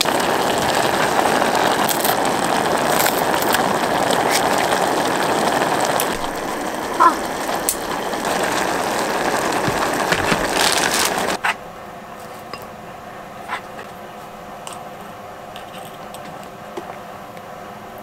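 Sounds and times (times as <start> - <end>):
broth bubbling at a boil: 0.0 - 11.4
spoon scraping plastic: 13.4 - 14.0, 15.6 - 16.5.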